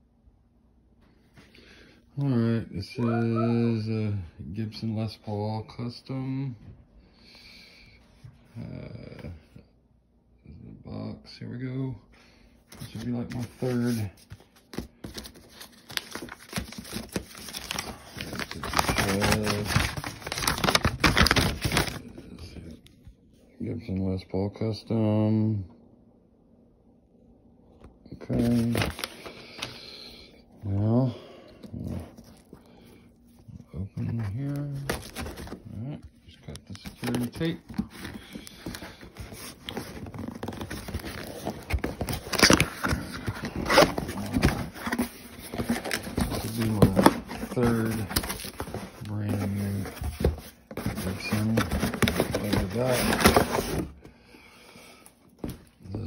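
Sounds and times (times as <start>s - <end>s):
cardboard scraping: 12.7s - 22.1s, 33.9s - 35.6s, 36.8s - 54.0s
paper rustling and crinkling: 12.7s - 22.8s, 28.2s - 30.1s, 31.7s - 54.0s.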